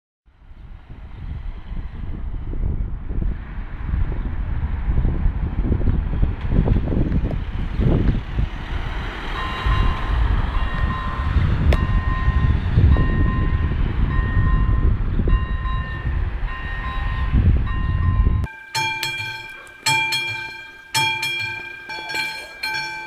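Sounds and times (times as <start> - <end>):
level-crossing warning beeps: 9.4 - 23.0.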